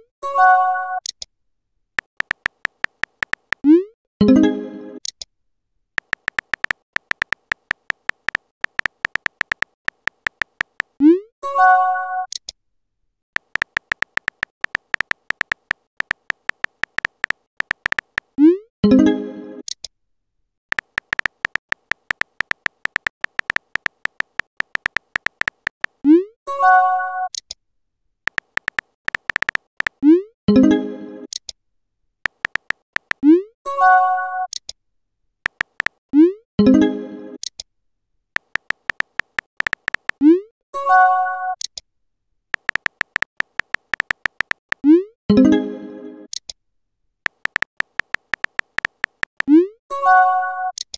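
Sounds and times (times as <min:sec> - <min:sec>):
phone keyboard typing clicks: 0:02.0 - 0:03.7, 0:06.0 - 0:11.0, 0:13.4 - 0:18.4, 0:20.7 - 0:26.0, 0:28.3 - 0:30.0, 0:32.3 - 0:33.3, 0:35.5 - 0:36.0, 0:38.4 - 0:40.2, 0:42.6 - 0:44.9, 0:47.3 - 0:49.6.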